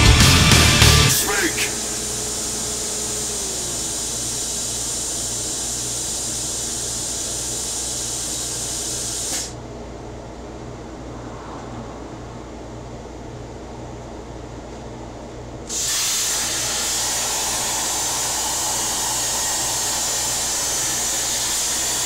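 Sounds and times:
low machine hum: 0.0s - 7.7s, 9.6s - 22.0s
plasma torch hissing: 0.7s - 9.6s, 15.7s - 22.0s.

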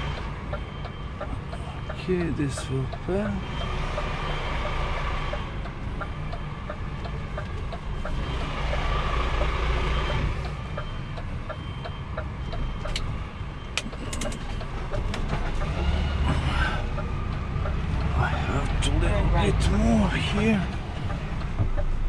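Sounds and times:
reversing alarm beeps: 0.0s - 5.4s, 9.4s - 15.0s
truck diesel engine running: 0.0s - 13.2s
sharp clicks: 10.4s - 15.7s.

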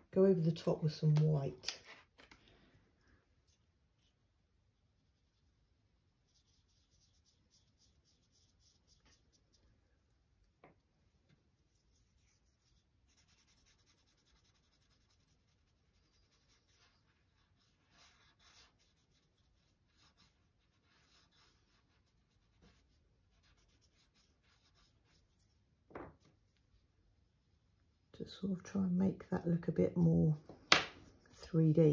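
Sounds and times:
pastel rubbing on paper: 6.2s - 25.7s.

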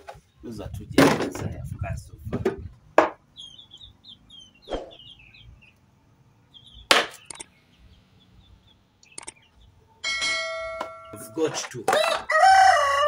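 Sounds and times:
small bird chirping: 3.2s - 10.0s.

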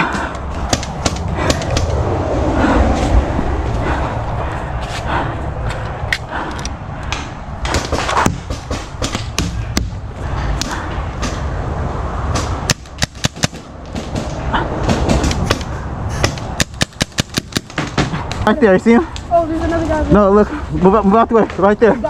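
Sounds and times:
steady low rumble: 0.0s - 21.7s
paintball markers firing: 12.4s - 18.1s.

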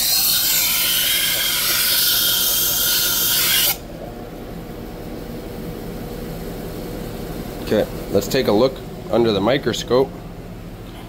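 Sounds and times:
knife grinding on wheel: 0.0s - 3.8s
grinder motor humming: 0.0s - 4.9s.

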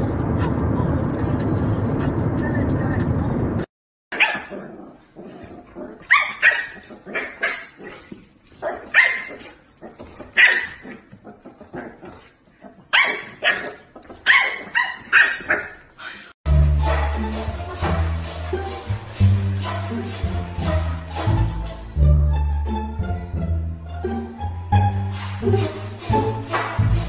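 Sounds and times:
dog barking: 4.1s - 4.7s, 6.0s - 8.0s, 8.6s - 9.6s, 10.3s - 11.0s, 12.7s - 15.8s
music with steady bass line: 16.5s - 27.0s.

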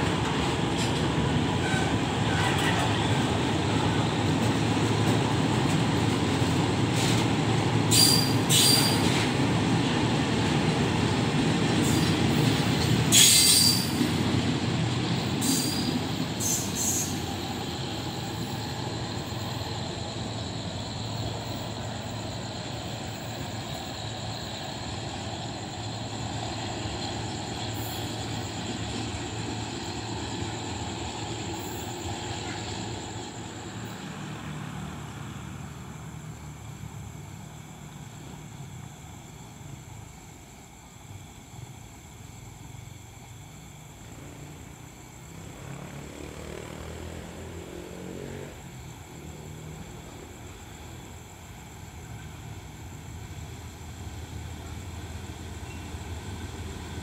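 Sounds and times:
train wheels rumbling on rail: 0.0s - 57.0s
high wheel squeals: 7.9s - 9.3s, 13.1s - 14.2s, 15.4s - 19.5s.

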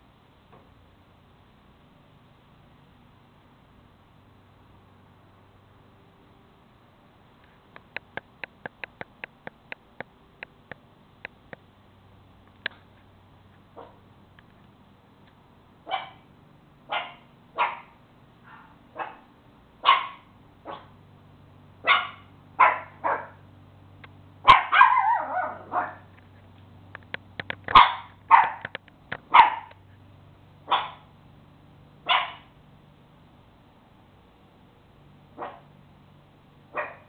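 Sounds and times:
small dog barking: 13.8s - 14.0s, 15.8s - 16.3s, 16.9s - 21.0s, 21.8s - 23.4s, 24.4s - 26.1s, 27.7s - 28.7s, 29.3s - 29.8s, 30.6s - 31.1s, 32.0s - 32.5s, 35.4s - 35.7s, 36.7s - 37.0s.

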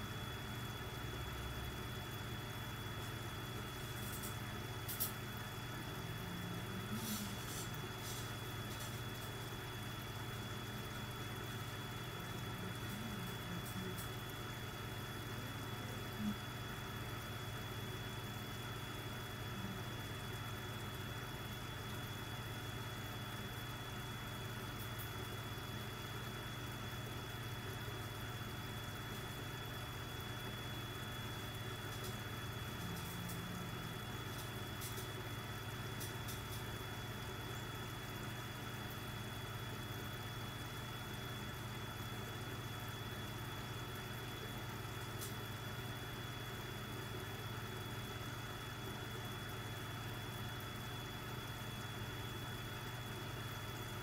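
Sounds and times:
air pump humming: 0.0s - 54.0s
thin high whine: 2.9s - 14.4s, 15.2s - 16.9s.

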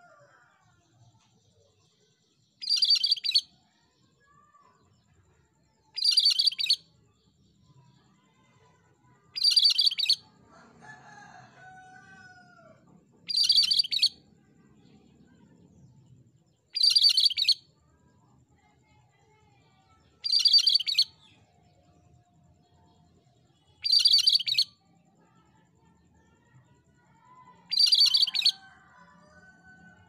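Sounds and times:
bird singing stuttering phrases: 2.6s - 3.5s, 5.9s - 6.8s, 9.4s - 10.3s, 13.3s - 14.2s, 16.7s - 17.6s, 20.2s - 21.4s, 23.8s - 24.7s, 27.7s - 28.6s
lower bird call with falling glides: 27.7s - 28.5s.

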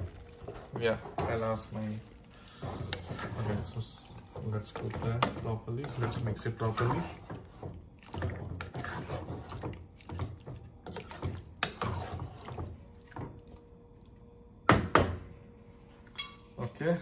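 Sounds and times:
spatula scraping in a pot: 0.0s - 12.8s.

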